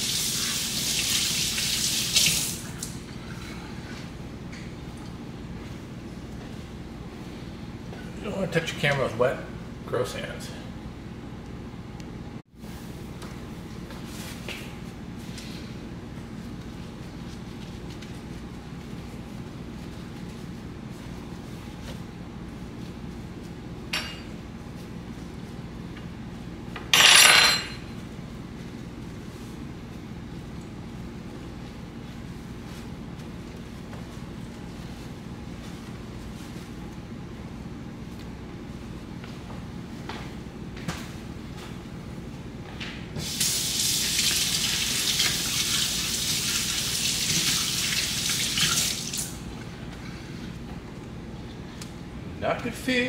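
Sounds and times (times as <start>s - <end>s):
water running from a tap: 0.0s - 3.0s, 43.2s - 49.4s
steady low hum: 2.6s - 43.2s, 49.4s - 53.0s
paper towel crinkling: 16.1s - 23.8s, 28.3s - 39.2s.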